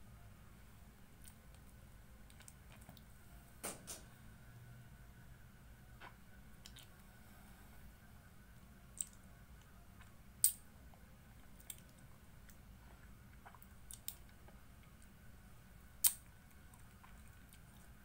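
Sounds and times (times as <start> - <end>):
mouth clicks and lip smacks: 2.2 - 3.1, 6.0 - 6.9, 16.0 - 17.7.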